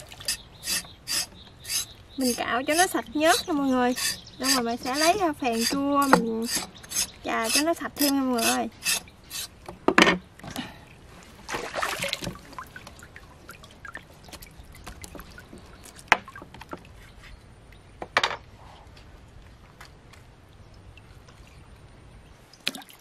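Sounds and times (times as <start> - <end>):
water trickling and dripping: 11.7 - 17.0.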